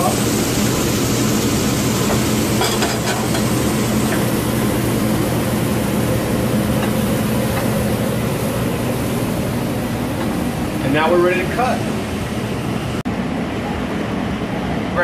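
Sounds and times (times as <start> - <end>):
meat sizzling in a skillet: 0.0 - 9.4
steady low hum: 0.0 - 15.0.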